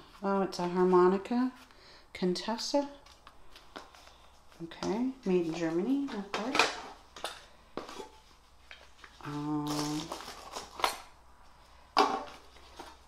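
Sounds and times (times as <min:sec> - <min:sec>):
clicks and rustles of objects: 0:03.0 - 0:11.1.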